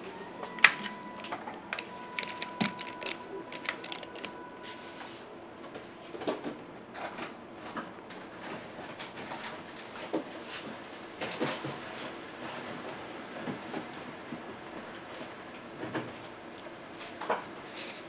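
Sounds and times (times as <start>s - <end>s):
utensils and containers clicking: 0.5s - 4.5s.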